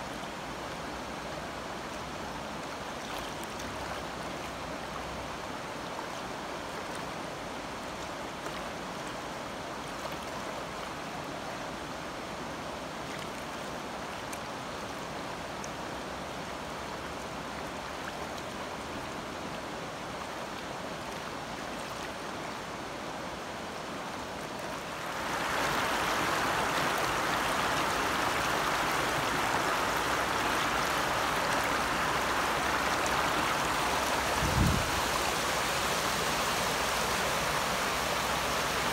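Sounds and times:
floodwater rushing: 0:00.0 - 0:38.9.

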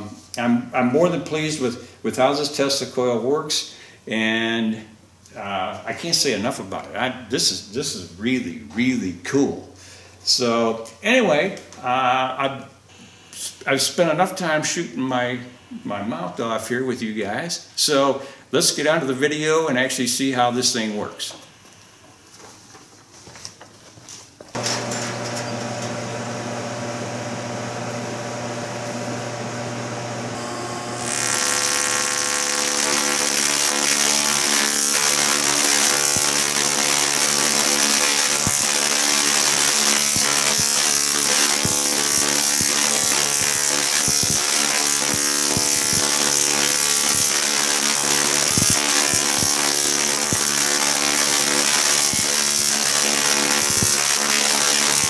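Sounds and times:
harsh spark buzz with cracks: 0:24.5 - 0:26.2, 0:28.4 - 0:55.0
tesla coil electrical hum: 0:24.6 - 0:55.0.

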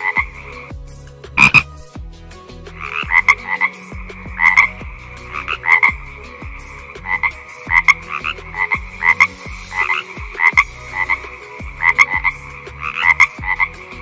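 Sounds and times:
frog croaking: 0:00.0 - 0:00.6, 0:01.4 - 0:01.7, 0:02.8 - 0:13.8.

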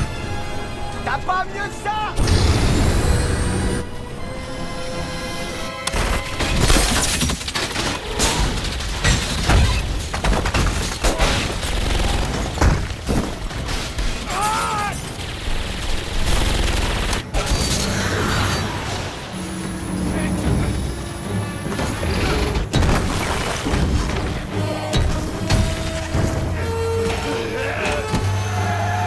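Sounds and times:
background music: 0:00.0 - 0:08.9, 0:14.3 - 0:29.0
debris shattering: 0:05.9 - 0:16.0, 0:21.6 - 0:28.5
rapid gunfire: 0:10.5 - 0:13.4, 0:15.0 - 0:17.8.

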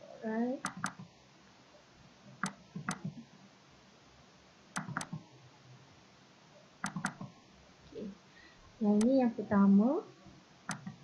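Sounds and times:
faint steady hiss: 0:00.0 - 0:11.0
computer mouse double-clicks: 0:00.6 - 0:01.1, 0:02.4 - 0:03.2, 0:04.8 - 0:05.2, 0:06.8 - 0:07.3, 0:10.7 - 0:11.0.

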